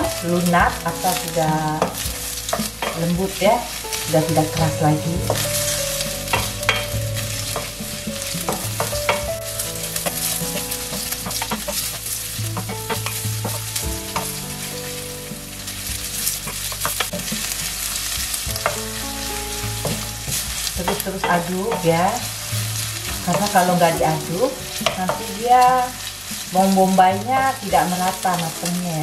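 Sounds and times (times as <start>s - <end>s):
onions sizzling in hot oil: 0.0s - 29.0s
wooden spatula scraping a pan: 0.0s - 29.0s.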